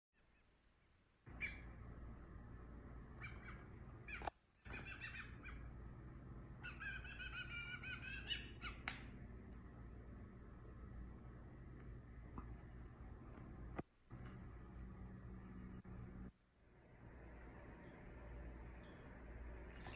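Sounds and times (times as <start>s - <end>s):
fledgling blue jay begging calls: 1.3s - 1.8s, 3.1s - 5.8s, 6.6s - 9.1s.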